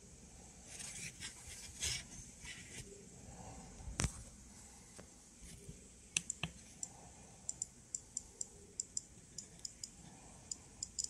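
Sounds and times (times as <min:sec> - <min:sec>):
geiger counter clicking: 0:06.2 - 0:06.9, 0:07.5 - 0:11.0.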